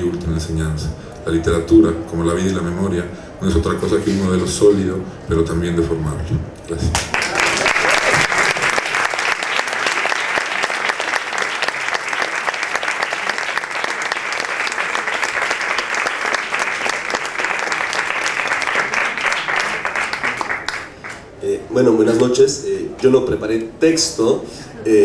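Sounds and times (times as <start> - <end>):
audience applauding: 6.9 - 21.3.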